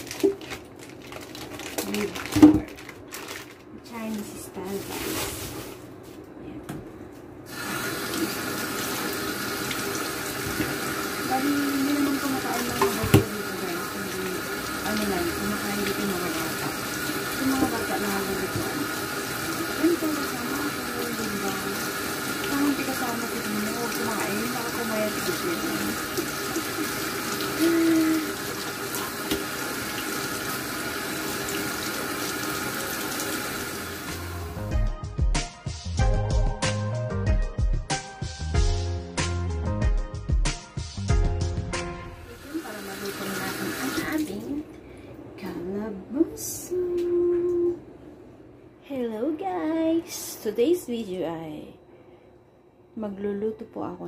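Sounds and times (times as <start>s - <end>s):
tap water running into sink: 7.5s - 34.5s, 42.3s - 44.5s.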